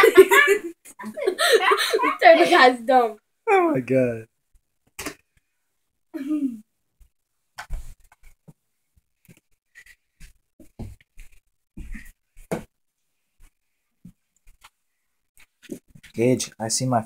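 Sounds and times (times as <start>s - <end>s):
thumps and rustles of toys: 7.6s - 8.6s, 10.2s - 12.7s.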